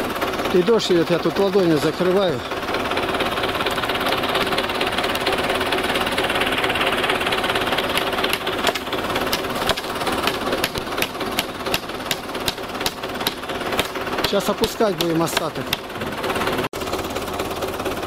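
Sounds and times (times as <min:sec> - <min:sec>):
tractor engine running: 0:00.0 - 0:18.0
hammer driving nails into wood: 0:08.0 - 0:15.9.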